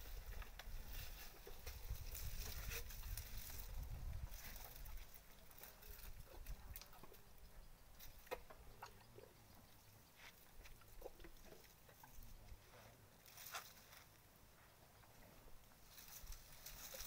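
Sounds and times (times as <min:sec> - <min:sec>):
elephant feeding clicks and rustles: 0:00.0 - 0:17.0.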